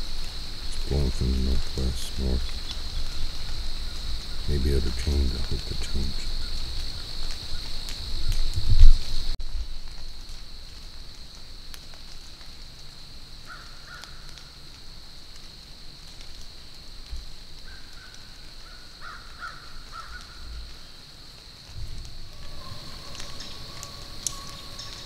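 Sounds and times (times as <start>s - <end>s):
crows cawing: 13.5s - 14.6s, 17.6s - 20.5s, 22.3s - 25.0s.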